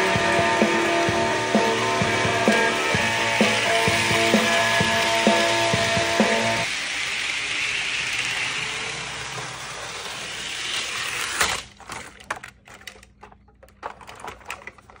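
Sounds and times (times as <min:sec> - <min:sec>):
model train whirring: 0:00.0 - 0:12.1
small clicks and rattles: 0:11.7 - 0:15.0.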